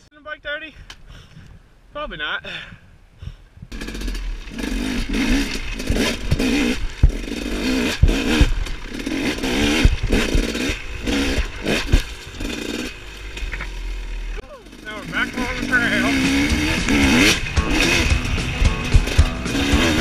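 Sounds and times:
two-stroke dirt bike revving: 0:03.7 - 0:20.0
bike knocking on rocks: 0:05.3 - 0:10.7.

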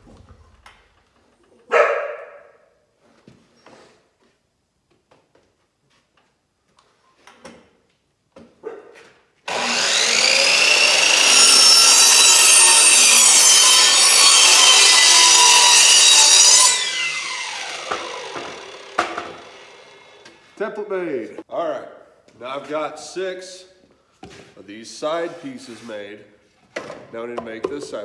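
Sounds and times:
miter saw cutting wood: 0:09.5 - 0:20.7.

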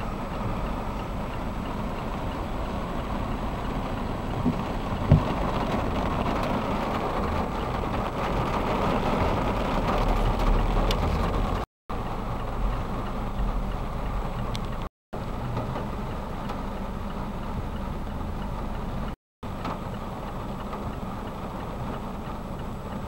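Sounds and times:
car moving on wet road: 0:00.0 - 0:23.0
heavy rain drumming on car roof: 0:00.0 - 0:23.0
thump: 0:04.4 - 0:05.4.

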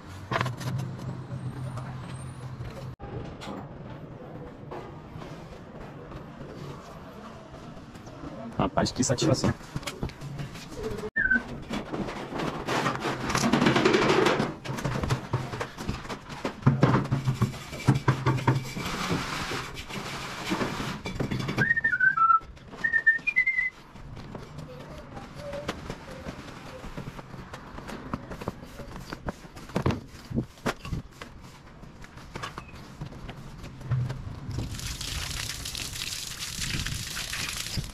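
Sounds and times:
rustling and shuffling: 0:09.2 - 0:34.8
man whistling: 0:11.2 - 0:11.4, 0:21.6 - 0:23.7.

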